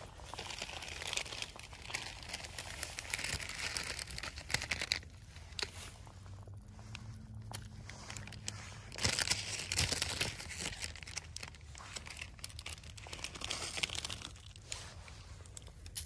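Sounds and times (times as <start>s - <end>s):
cooking fire crackling and hissing: 0.0s - 16.0s.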